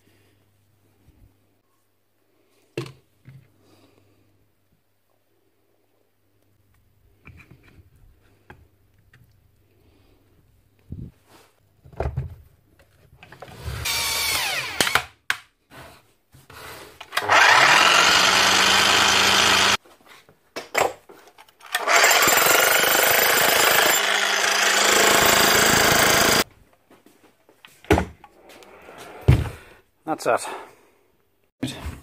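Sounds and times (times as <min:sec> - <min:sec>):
electric demolition hammer running: 0:17.2 - 0:19.8, 0:21.7 - 0:26.4.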